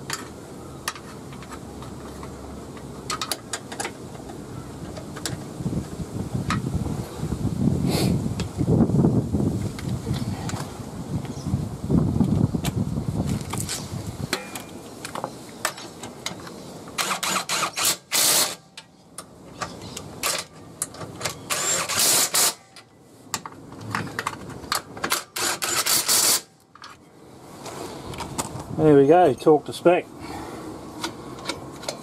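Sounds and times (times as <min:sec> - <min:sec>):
torque wrench ratcheting: 0:17.0 - 0:18.6, 0:21.5 - 0:22.6, 0:25.2 - 0:26.5.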